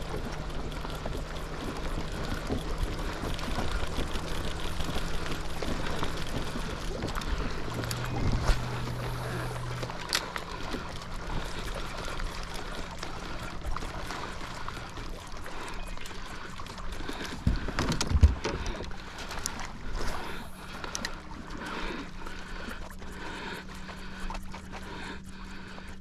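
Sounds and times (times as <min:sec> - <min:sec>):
small clicks: 0:00.0 - 0:10.5
water lapping against hull: 0:00.0 - 0:26.0.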